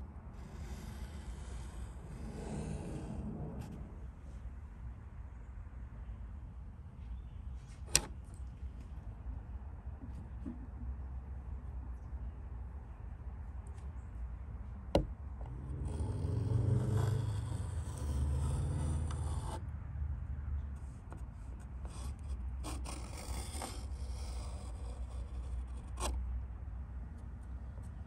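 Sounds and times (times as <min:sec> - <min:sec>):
pencil scraping on wood: 0:00.4 - 0:03.8, 0:15.0 - 0:19.6, 0:21.1 - 0:26.2.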